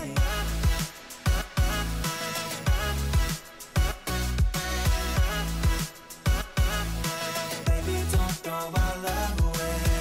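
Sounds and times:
pop music with bass: 0.0 - 10.0.

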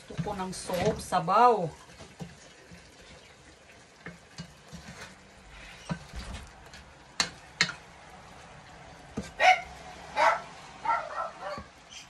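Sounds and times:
faint sizzle: 0.0 - 12.0
spatula scraping metal pot: 4.3 - 7.8.

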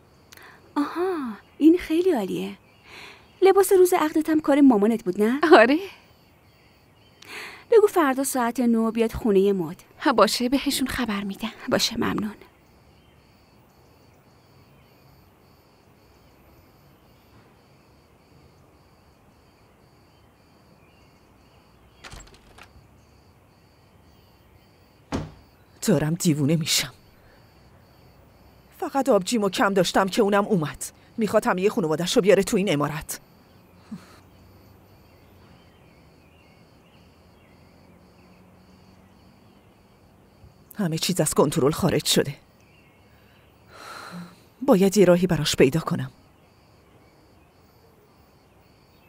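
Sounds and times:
cricket-like chirp: 0.0 - 49.0
cluster of clicks: 22.0 - 22.8.

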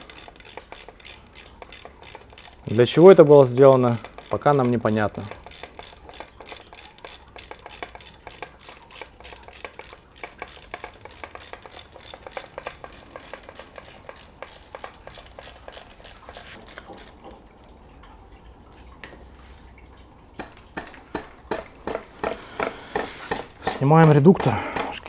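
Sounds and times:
ratchet wrench clicking: 0.0 - 17.2.

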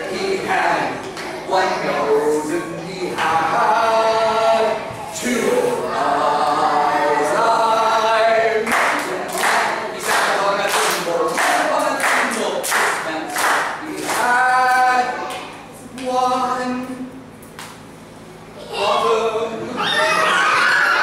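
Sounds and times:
children singing: 0.0 - 12.2.

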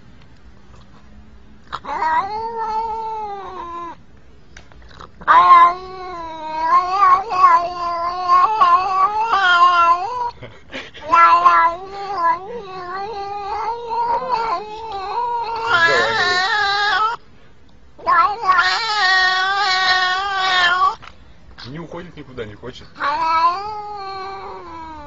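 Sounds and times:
cat yowling: 1.7 - 4.0, 5.0 - 10.4, 11.0 - 17.2, 18.0 - 21.0, 23.0 - 25.0.

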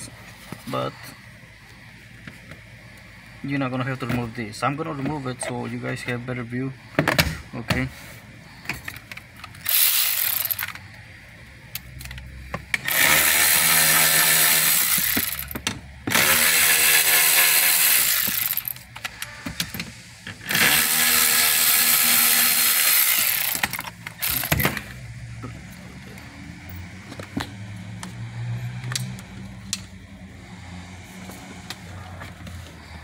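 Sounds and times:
ratchet wrench clicking: 9.4 - 10.8, 12.8 - 18.9, 20.5 - 24.6.

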